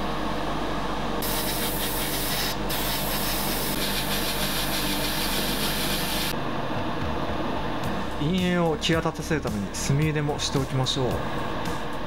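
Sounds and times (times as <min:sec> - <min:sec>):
airbrush spraying paint: 0:01.2 - 0:06.3.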